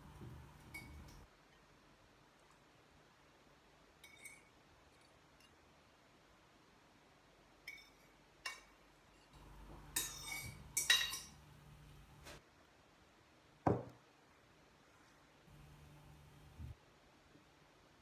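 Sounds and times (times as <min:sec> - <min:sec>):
fork clinking on ceramic dishes: 0:00.8 - 0:01.2, 0:04.0 - 0:05.6, 0:07.6 - 0:11.4.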